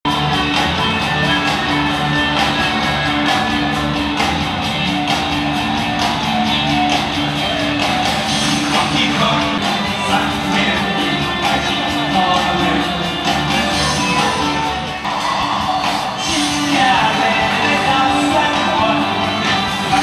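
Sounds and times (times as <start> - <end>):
electric guitar: 0.1 - 20.0
live rock band playing: 0.1 - 20.0
person singing: 8.3 - 20.0.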